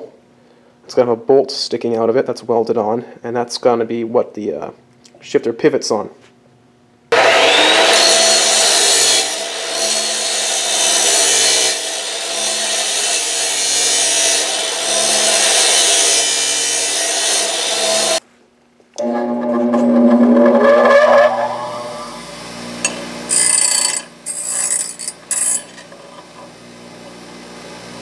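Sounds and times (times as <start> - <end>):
chop saw cutting steel: 7.1 - 18.2, 19.0 - 26.6.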